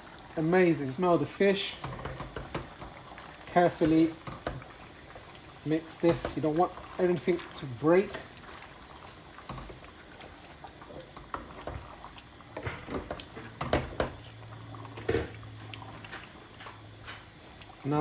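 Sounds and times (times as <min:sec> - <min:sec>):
curry bubbling in a pot: 0:00.0 - 0:18.0
spoon knocking and scraping pot: 0:01.8 - 0:03.0, 0:03.8 - 0:04.8, 0:06.1 - 0:06.5, 0:12.6 - 0:14.3.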